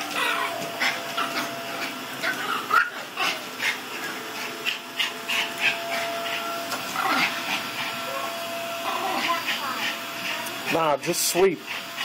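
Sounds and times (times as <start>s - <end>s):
vacuum cleaner motor humming: 0.0s - 12.0s
small dog barking and yapping: 0.1s - 3.4s.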